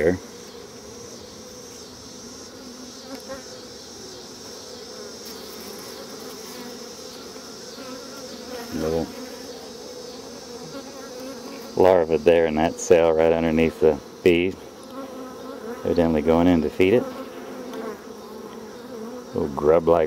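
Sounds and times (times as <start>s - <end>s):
honeybees humming: 0.0s - 20.0s.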